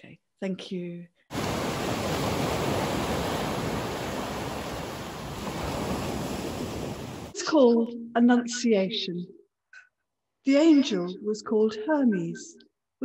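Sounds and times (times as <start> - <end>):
waves breaking on pebble beach: 1.3 - 7.4.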